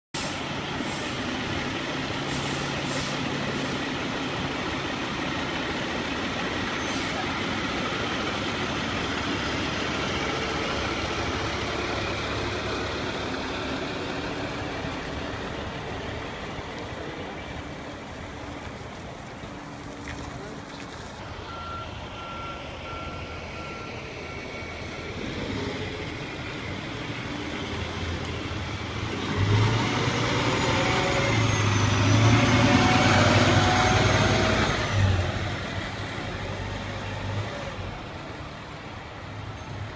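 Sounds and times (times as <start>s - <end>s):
air brake hisses: 0.2s - 1.2s, 2.2s - 3.8s
diesel engine running: 0.2s - 39.3s.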